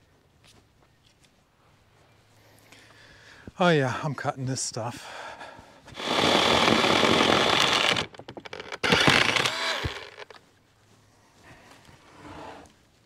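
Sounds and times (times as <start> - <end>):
wooden slab scraping along mill bed: 6.0 - 8.0.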